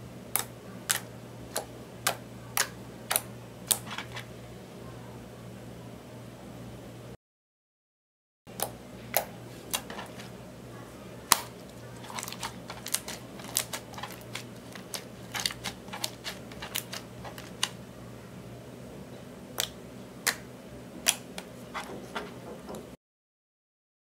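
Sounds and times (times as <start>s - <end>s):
low steady hum: 0.0s - 7.2s, 8.5s - 23.0s.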